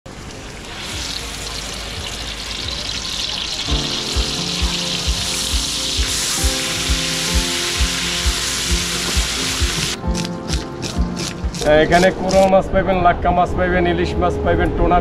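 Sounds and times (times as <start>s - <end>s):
fish sizzling in oil: 0.1s - 12.5s
background music with a beat: 3.7s - 12.5s.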